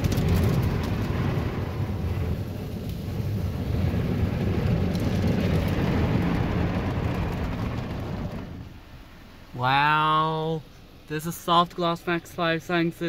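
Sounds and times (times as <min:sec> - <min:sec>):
car wash water spray: 0:00.0 - 0:09.6.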